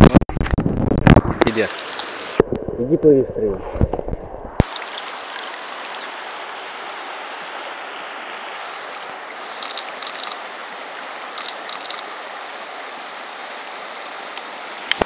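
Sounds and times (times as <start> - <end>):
river water rushing over stones: 1.4 - 2.4, 4.6 - 15.0
faint high ticks: 9.0 - 10.4, 11.4 - 12.1.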